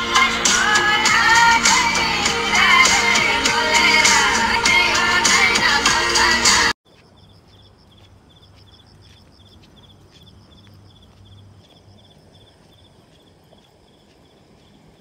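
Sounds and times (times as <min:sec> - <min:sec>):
insect chirping: 0:06.9 - 0:15.0.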